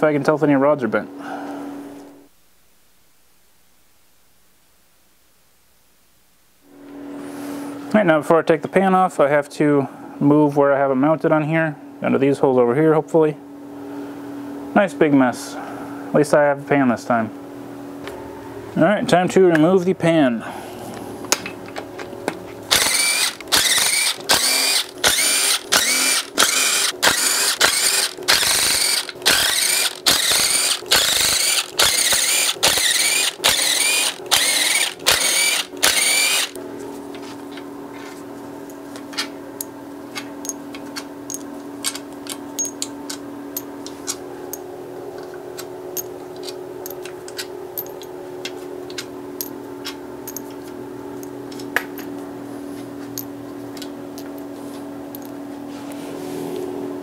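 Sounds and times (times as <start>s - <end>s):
steady hum: 0.0s - 57.0s
cordless power tool bursts: 22.7s - 36.6s.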